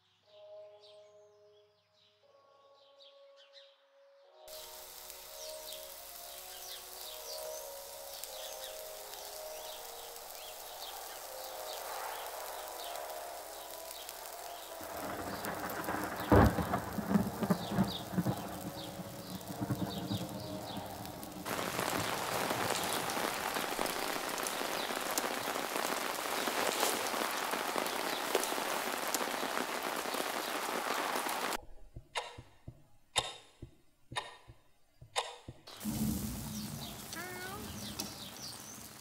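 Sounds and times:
heavy rain: 4.5 - 31.6, 35.7 - 39.0
clock ticking: 31.9 - 35.7.

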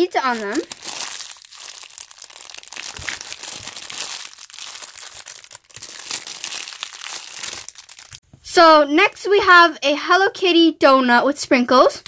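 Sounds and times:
plastic packaging crinkling: 0.2 - 8.2.

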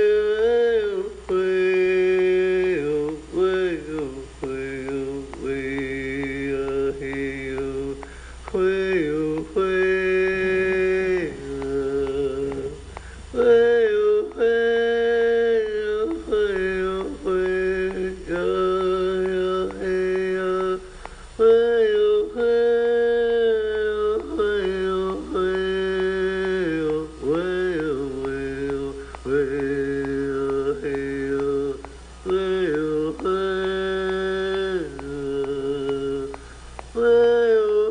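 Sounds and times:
two voices chanting: 0.0 - 37.9.

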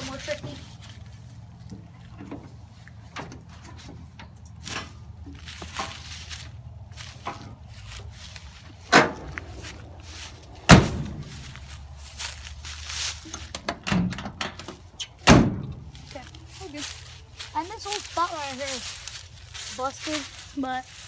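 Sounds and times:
truck door slamming: 8.9 - 9.5, 10.6 - 11.3, 13.5 - 15.9.

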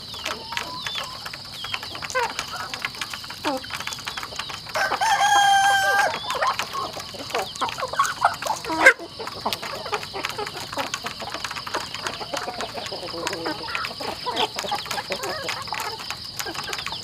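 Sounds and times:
beaks pecking plastic trough: 0.0 - 17.0
chickens clucking: 0.0 - 17.0
rooster crowing: 4.8 - 6.3
chicken squawk: 4.8 - 10.6.

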